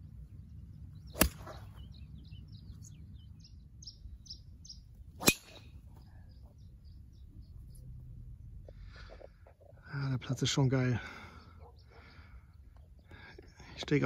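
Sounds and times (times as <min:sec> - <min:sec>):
bird chirping: 0:00.0 - 0:08.6
golf driver striking ball: 0:01.1 - 0:01.7, 0:05.2 - 0:05.7.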